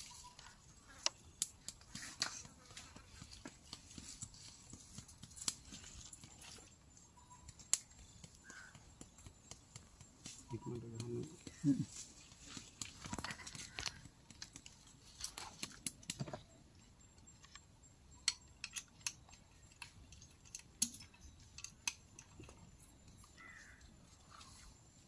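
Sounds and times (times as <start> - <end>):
rifle clicks and metallic handling: 18.2 - 22.7.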